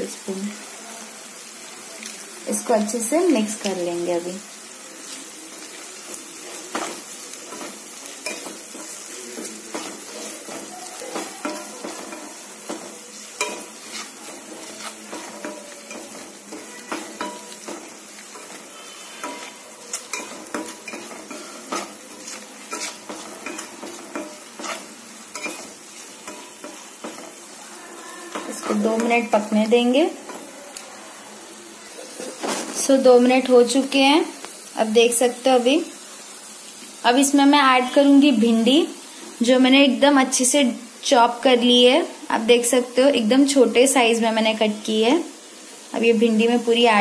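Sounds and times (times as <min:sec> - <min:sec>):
onions sizzling in oil: 0:00.0 - 0:47.0
spatula scraping a pan: 0:06.0 - 0:30.6.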